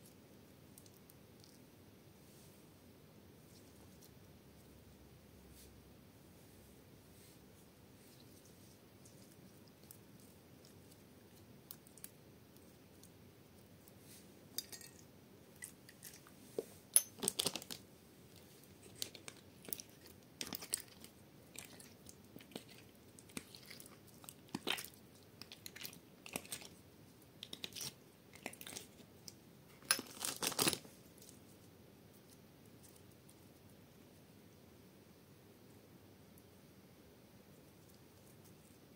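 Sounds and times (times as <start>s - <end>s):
slime squishing: 17.2s - 26.8s.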